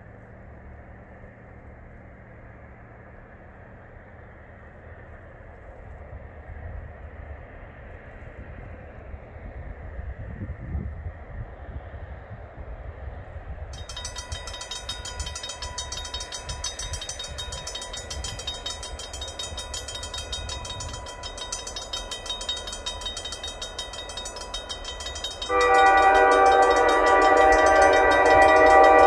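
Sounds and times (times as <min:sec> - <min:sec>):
wind rumble on microphone: 0:04.7 - 0:21.6
railroad crossing bell ringing: 0:13.7 - 0:29.0
locomotive horn chord: 0:25.4 - 0:29.0.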